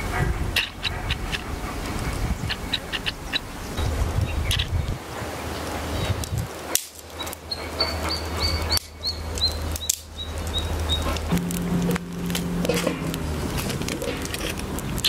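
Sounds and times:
low hum: 11.3s - 14.8s.

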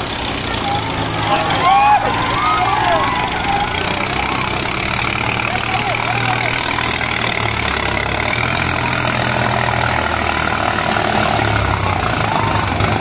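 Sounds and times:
diesel tractor engines under load: 0.0s - 13.0s.

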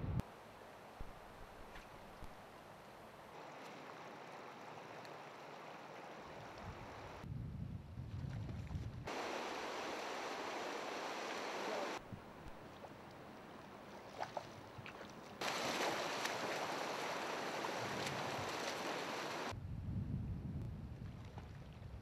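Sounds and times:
river water rushing over rocks: 9.1s - 12.0s, 15.4s - 19.5s.

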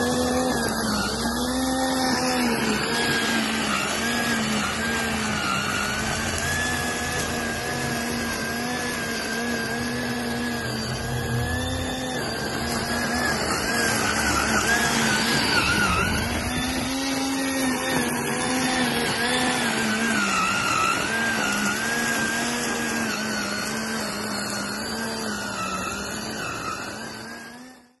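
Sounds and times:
trimmer motor whining: 0.0s - 28.0s.

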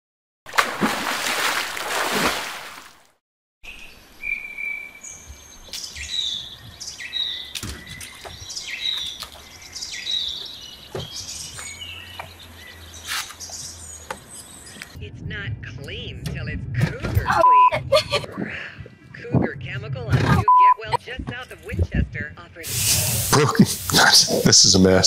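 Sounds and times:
rushing splash: 0.5s - 3.1s
birdsong chirps: 3.6s - 15.0s.

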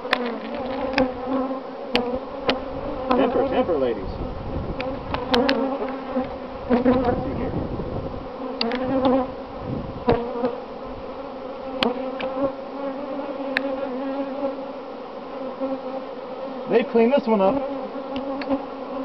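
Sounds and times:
honeybees buzzing: 0.0s - 19.0s.

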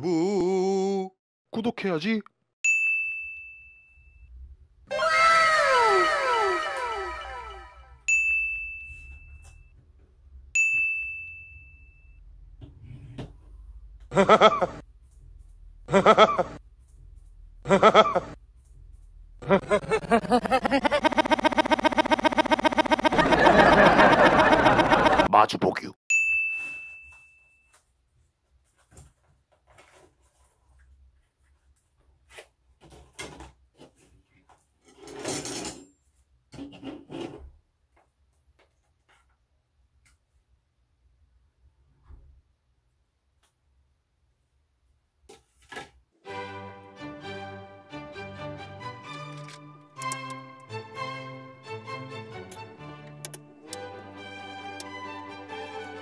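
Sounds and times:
bell-like dings: 2.6s - 4.3s, 8.1s - 9.7s, 10.6s - 12.2s, 26.1s - 27.8s.

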